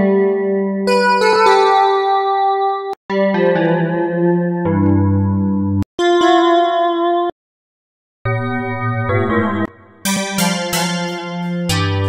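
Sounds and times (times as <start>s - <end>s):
synthesizer pad notes: 8.3s - 12.0s.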